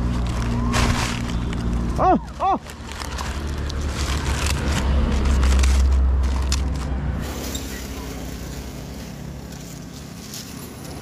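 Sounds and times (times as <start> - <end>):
paper crackling: 0.0 - 11.0
vehicle engine rumbling past: 0.0 - 11.0.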